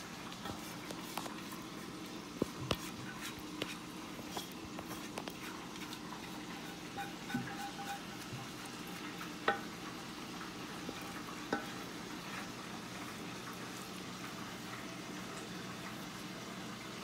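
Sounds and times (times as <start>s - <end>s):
wet scraping of food from bowl: 0.2s - 9.6s.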